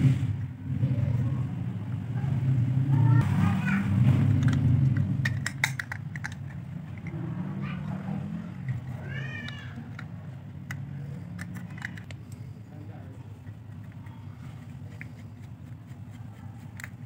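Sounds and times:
plastic casing clicking: 0:04.4 - 0:06.6, 0:09.5 - 0:12.3
cat meowing: 0:09.0 - 0:09.9.

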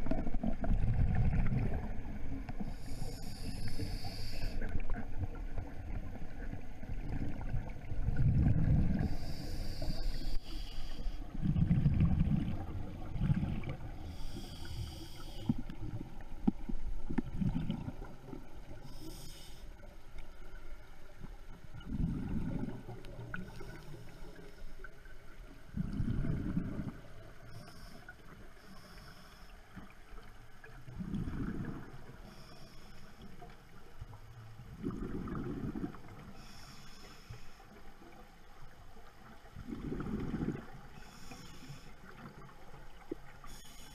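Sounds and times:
regulator inhale hiss: 0:02.6 - 0:04.8, 0:08.9 - 0:11.4, 0:14.0 - 0:15.8, 0:18.8 - 0:20.0, 0:27.5 - 0:29.9, 0:32.1 - 0:33.4, 0:36.2 - 0:37.9, 0:40.9 - 0:42.3, 0:43.4 - 0:43.9
bubbling exhaled air: 0:11.3 - 0:15.6, 0:25.7 - 0:27.6, 0:30.9 - 0:32.2, 0:34.7 - 0:36.6, 0:39.6 - 0:41.2.

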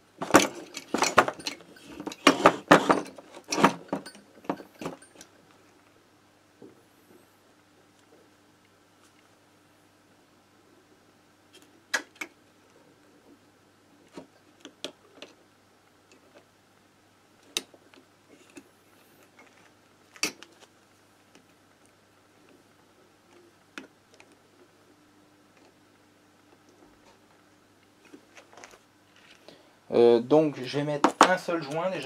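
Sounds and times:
faint steady hum: 0:00.0 - 0:32.0
metal parts and tools clicking: 0:00.2 - 0:05.3.

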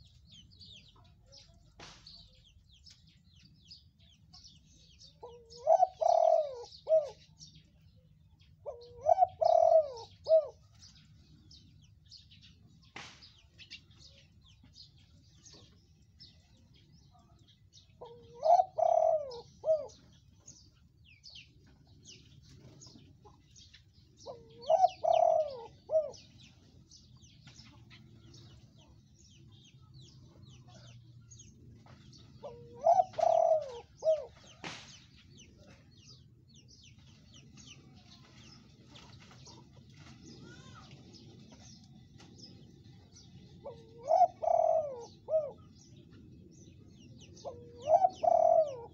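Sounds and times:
dove cooing: 0:05.0 - 0:07.4, 0:08.6 - 0:10.8, 0:17.8 - 0:20.6, 0:21.4 - 0:26.9, 0:32.1 - 0:34.6, 0:42.8 - 0:46.1, 0:46.8 - 0:48.9.

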